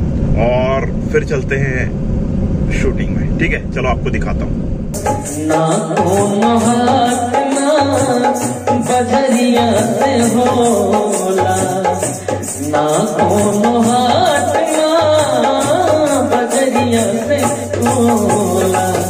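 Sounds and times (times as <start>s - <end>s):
background music with beat: 5.0s - 19.0s.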